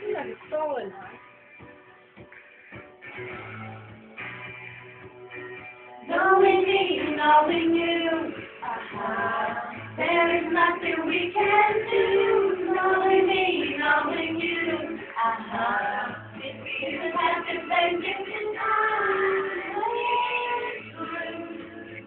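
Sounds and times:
young female voice singing: 0:16.6 - 0:22.0.

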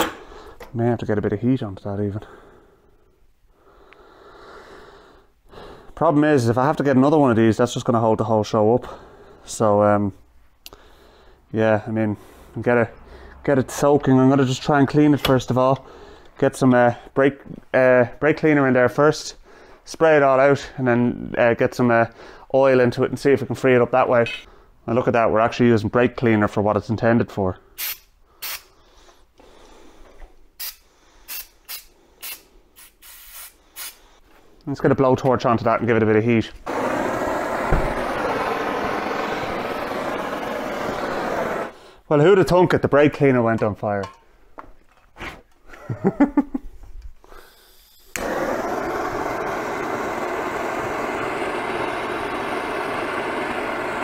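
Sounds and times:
aerosol spray bursts: 0:30.6 - 0:34.0
blowtorch hissing: 0:36.7 - 0:41.8, 0:47.4 - 0:54.0.

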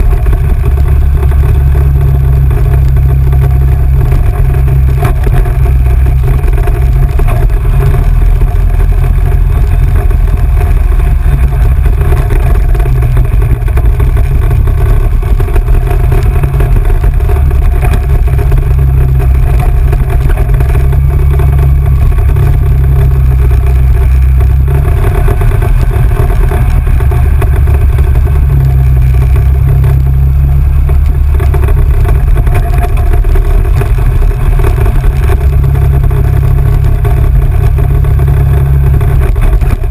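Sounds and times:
off-road vehicle engine rumbling: 0:00.0 - 0:39.9.

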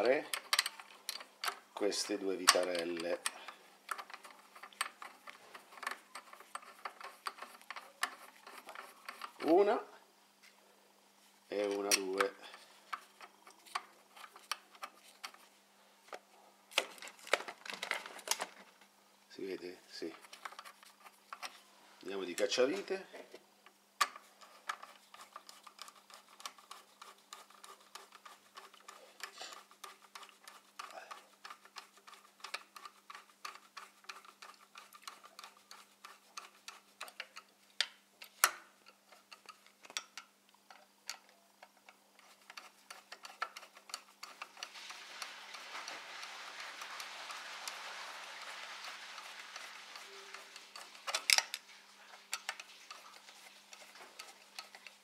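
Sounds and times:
soft steady hiss: 0:00.0 - 0:55.0
screwdriver metallic clicks: 0:49.2 - 0:51.6.

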